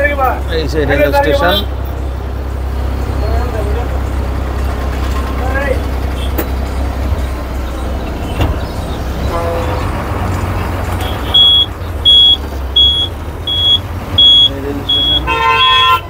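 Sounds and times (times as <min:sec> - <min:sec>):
bus engine rumble: 0:00.0 - 0:16.0
short electronic beeps: 0:11.0 - 0:15.3.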